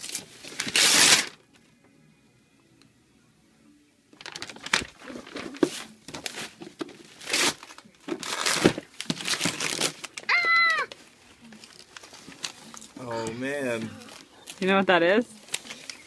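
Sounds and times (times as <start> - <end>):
paper tearing and crumpling: 0.0 - 1.4, 4.2 - 14.7, 15.4 - 16.0
high-pitched vocal cry: 10.3 - 10.9, 13.0 - 14.3.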